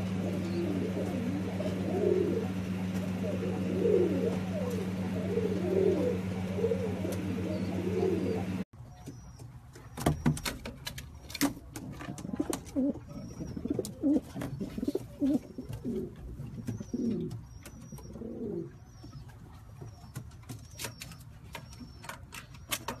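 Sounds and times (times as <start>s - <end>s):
pigeons cooing: 0.0s - 8.7s, 11.9s - 19.2s
steady low hum: 0.0s - 8.7s.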